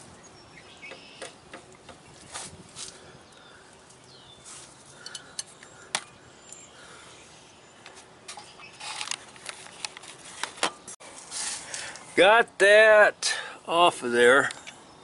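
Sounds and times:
pipe wrench clicking and scraping: 5.0s - 6.6s.

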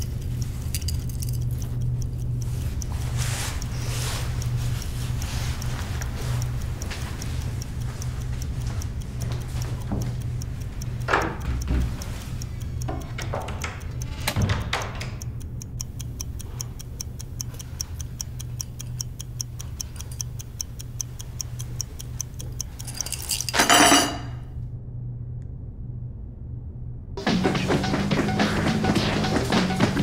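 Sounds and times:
clock ticking rapidly: 0.0s - 24.2s, 27.2s - 30.0s
low steady hum: 0.0s - 27.2s.

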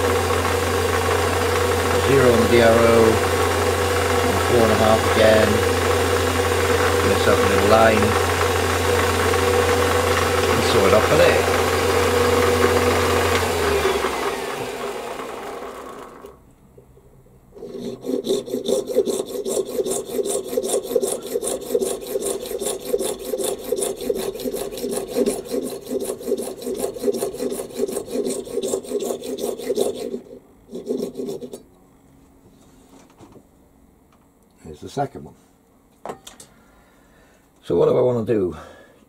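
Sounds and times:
hacksaw cutting metal rod: 0.0s - 14.7s, 17.6s - 31.6s
lathe spinning down: 0.0s - 16.4s.

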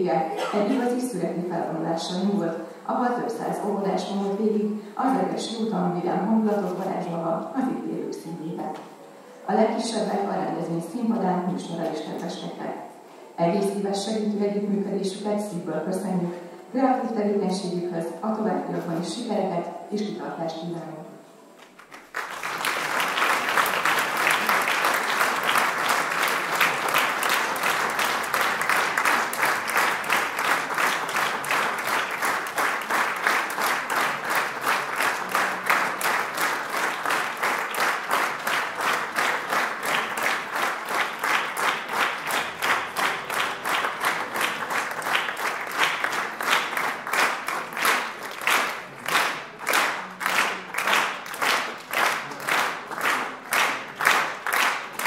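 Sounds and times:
audience applause: 21.6s - 55.0s.

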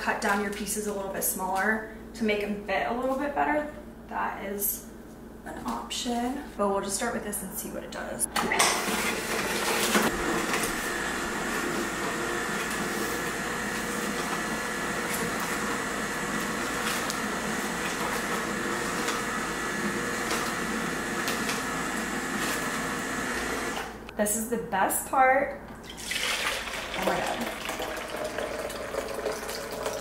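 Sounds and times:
juicer motor humming: 8.3s - 24.1s, 25.7s - 30.0s.

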